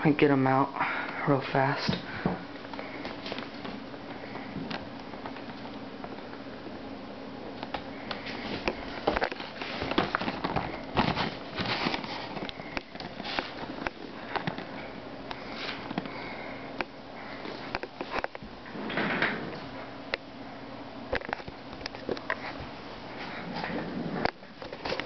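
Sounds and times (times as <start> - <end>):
plastic packaging crinkling: 8.4 - 14.8.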